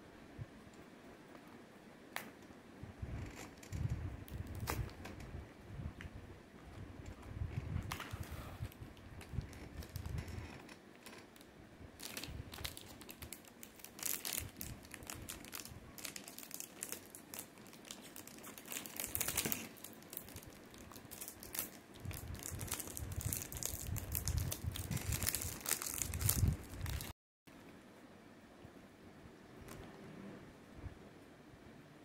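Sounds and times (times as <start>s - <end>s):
plastic packet crinkling: 8.9s - 27.1s.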